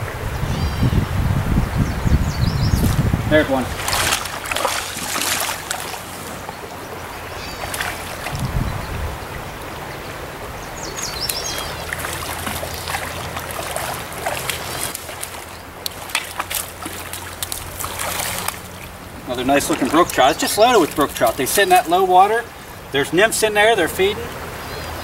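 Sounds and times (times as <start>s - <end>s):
flowing stream water: 0.0s - 25.0s
fish splashing at water surface: 3.6s - 8.4s, 11.2s - 22.7s.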